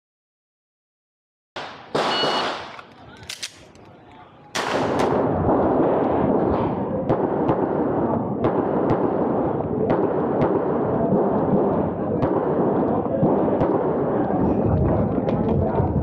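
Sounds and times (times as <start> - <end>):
pistol shots: 1.6 - 3.8, 4.6 - 6.0, 7.0 - 14.1
short beep: 2.0 - 2.6
constant rushing noise: 4.5 - 16.0.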